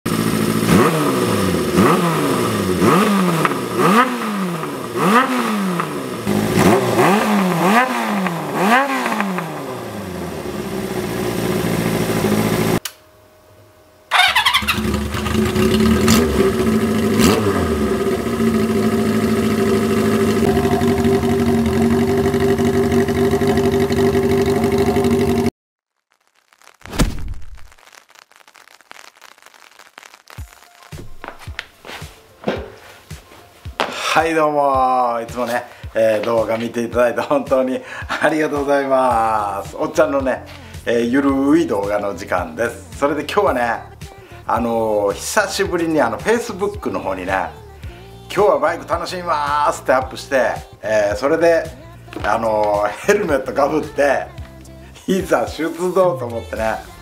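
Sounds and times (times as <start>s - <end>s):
motorcycle engine idling: 0.1s - 12.8s, 14.1s - 25.5s
motorcycle engine revving: 0.1s - 12.8s, 14.1s - 25.5s.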